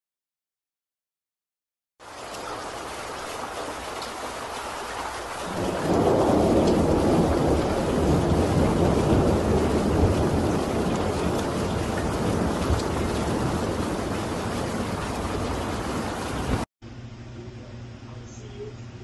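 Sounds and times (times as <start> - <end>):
steady rain: 2.0 - 16.7
thunder rumbling: 5.2 - 16.7.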